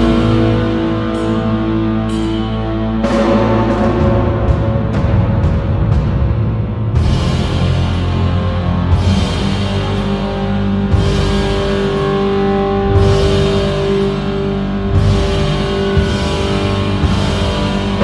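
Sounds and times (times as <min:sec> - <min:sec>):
rock music with guitar and drums: 0:00.0 - 0:18.0.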